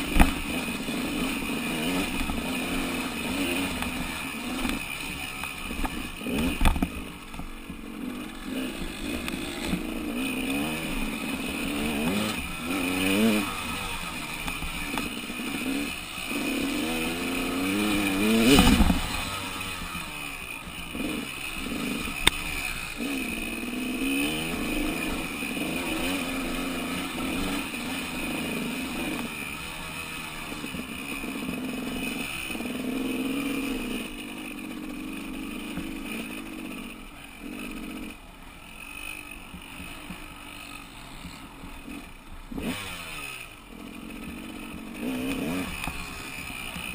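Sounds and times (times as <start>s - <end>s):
dirt bike engine revving: 0.0s - 46.9s.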